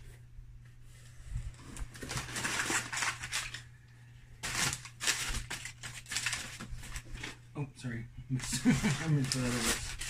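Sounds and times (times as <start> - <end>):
packing paper crinkling: 1.6 - 3.8, 4.4 - 7.4, 8.4 - 10.0.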